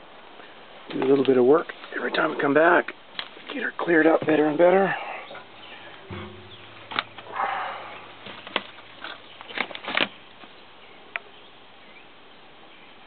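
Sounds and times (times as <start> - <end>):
rustle: 0.0 - 13.0
sharp knocks and clicks: 6.1 - 10.1.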